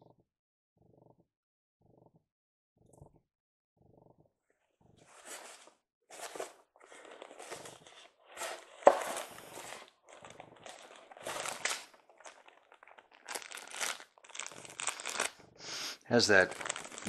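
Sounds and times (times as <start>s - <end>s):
plastic wrap crinkling: 6.2s - 15.4s, 16.1s - 17.0s.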